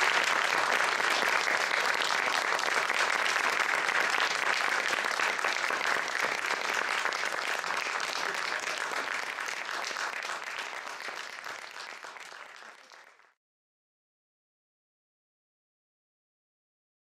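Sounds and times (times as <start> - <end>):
audience applause: 0.0 - 13.4.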